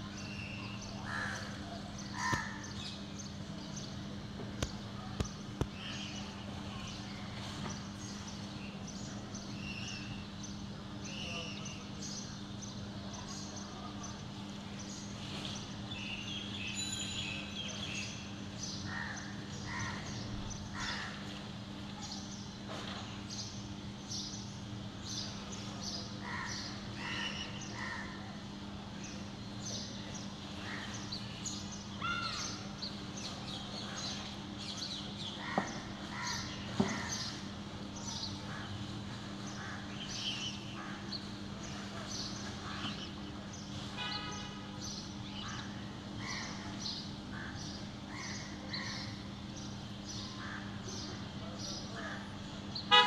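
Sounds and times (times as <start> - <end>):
crows cawing: 1.0 - 2.7, 18.9 - 21.2.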